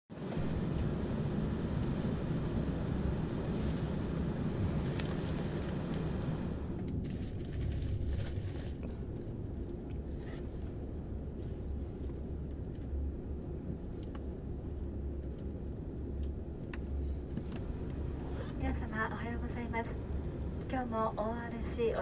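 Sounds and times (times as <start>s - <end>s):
aircraft cabin low rumble: 0.1s - 22.0s
aircraft cabin hiss: 0.2s - 7.1s, 16.8s - 21.8s.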